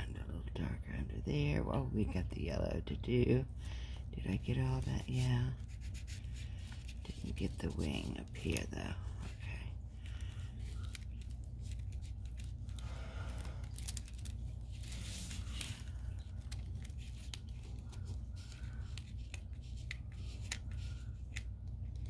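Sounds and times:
paper rustling and crinkling: 4.6s - 22.0s.

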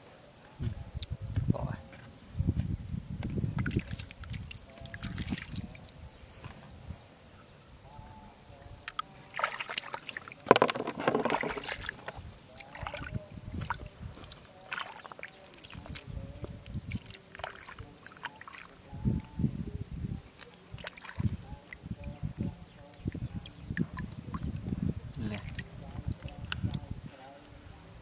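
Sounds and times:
water sloshing and splashing: 3.5s - 6.0s, 8.9s - 18.8s, 20.4s - 26.9s
hands squelching in wet mud: 3.6s - 5.8s, 8.9s - 10.4s, 11.3s - 16.1s, 16.8s - 18.8s, 20.5s - 21.3s.

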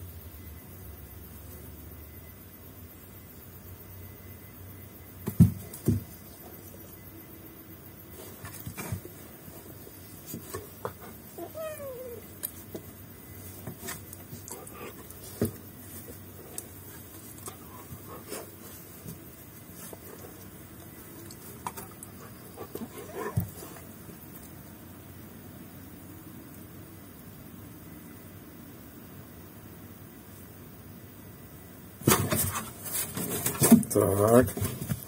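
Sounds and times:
pet animal calling: 11.4s - 12.3s.

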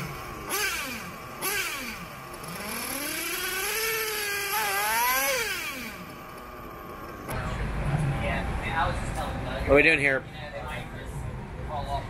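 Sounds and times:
small nitro engine revving: 0.0s - 6.4s.

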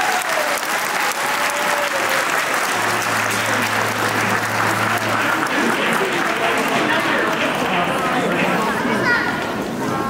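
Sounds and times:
audience applauding: 0.0s - 9.1s
low steady hum: 2.7s - 7.9s.

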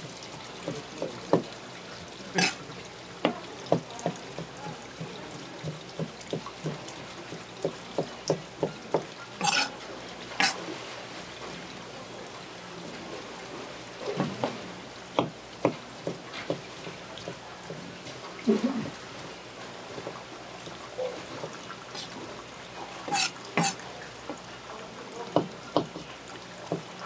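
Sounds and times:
wet knife scrapes: 2.4s - 2.6s, 9.4s - 9.7s, 23.1s - 23.8s
knife knocking on cutting board: 15.2s - 16.6s, 25.4s - 26.0s.

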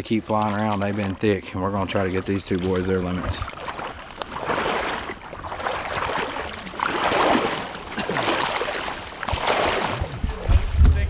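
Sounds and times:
water swishing and splashing: 0.0s - 11.0s
wind rumble on microphone: 9.9s - 11.0s.

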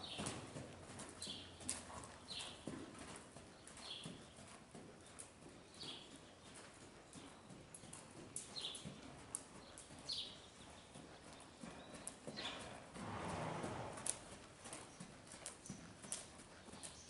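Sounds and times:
horse hoofbeats on sand: 0.0s - 17.0s.

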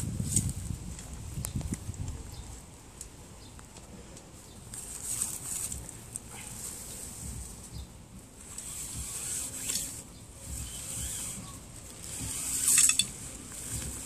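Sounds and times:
tent fabric rustling: 4.3s - 14.0s.

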